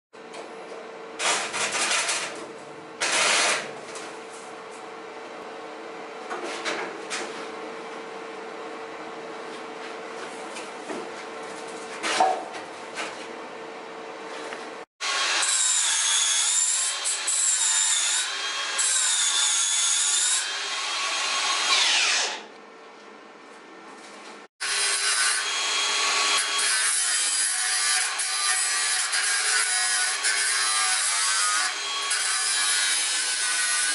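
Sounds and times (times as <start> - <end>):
angle grinder grinding metal: 24.6 - 33.9.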